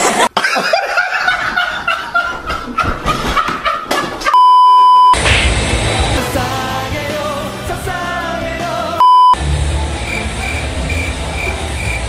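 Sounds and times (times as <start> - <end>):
high bleep tone: 4.4 - 5.2, 9.0 - 9.4
bass-heavy beat: 5.2 - 12.0
loud jumbled sound: 9.8 - 12.0.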